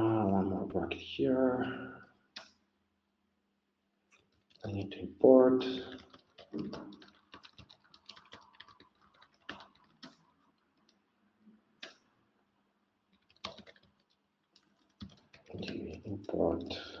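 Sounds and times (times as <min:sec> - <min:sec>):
computer keyboard typing: 0:05.7 - 0:11.0, 0:13.1 - 0:17.0.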